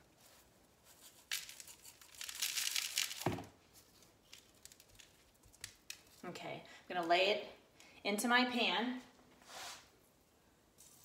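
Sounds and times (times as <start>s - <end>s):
seasoning granules rattling: 1.2s - 3.3s.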